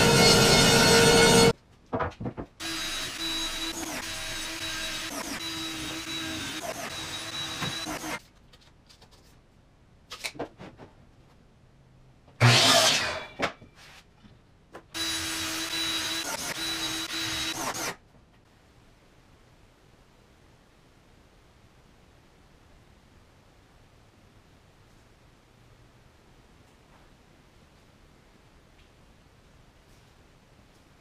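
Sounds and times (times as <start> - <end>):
miter saw cutting: 0.0 - 1.5, 2.6 - 8.2, 12.4 - 13.4, 15.0 - 18.0
handheld power tool running: 2.6 - 8.2, 15.0 - 18.0.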